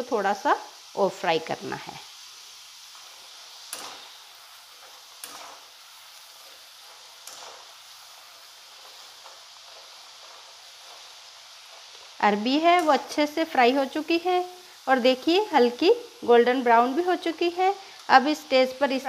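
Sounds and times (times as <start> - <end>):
oil sizzling: 0.0 - 19.0
sharp oil pops: 3.7 - 4.1.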